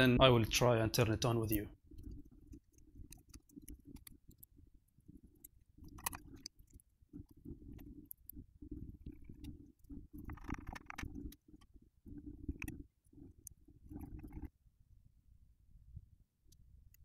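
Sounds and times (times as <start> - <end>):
small plastic clicks and rustles: 1.5 - 11.8.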